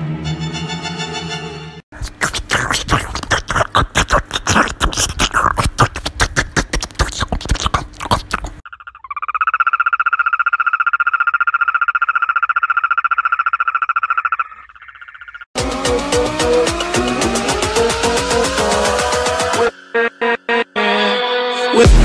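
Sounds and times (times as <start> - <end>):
frog pulsed trill: 8.6 - 15.5.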